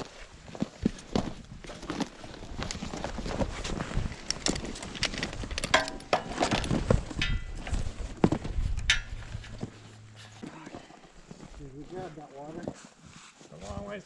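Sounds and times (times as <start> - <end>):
knocks and metallic clinks: 5.0 - 8.0, 8.8 - 9.8
footsteps crunching on snow: 6.1 - 14.0.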